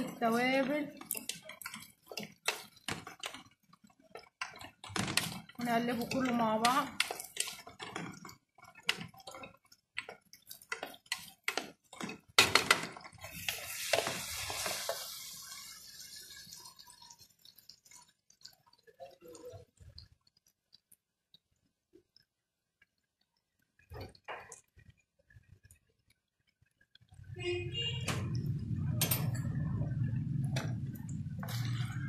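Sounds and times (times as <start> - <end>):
spoon scraping cooking pan: 0.0 - 18.8
food sizzling: 0.0 - 32.0.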